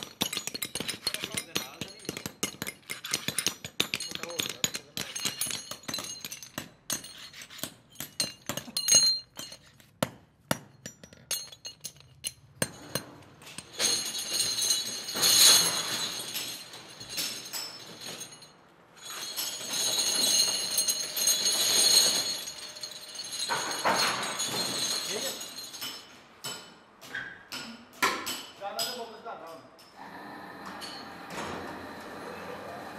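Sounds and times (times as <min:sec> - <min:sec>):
metal castings clinking: 0:00.0 - 0:09.9, 0:10.5 - 0:26.9.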